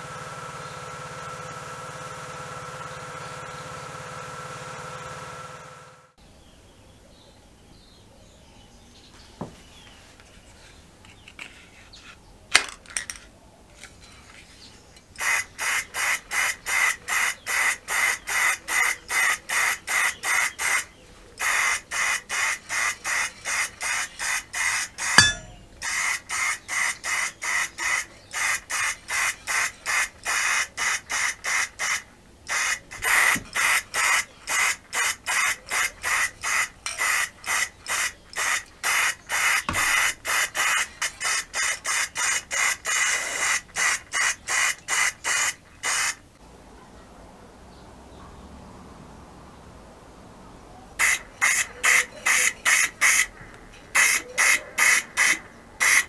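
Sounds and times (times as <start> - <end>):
spray paint can hissing: 15.2 - 46.2, 51.0 - 53.3, 54.0 - 56.0.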